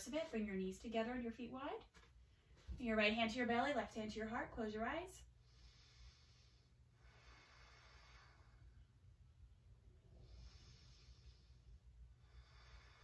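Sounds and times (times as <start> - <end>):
low room hum: 0.0 - 13.0
woman breathing slowly: 5.2 - 13.0.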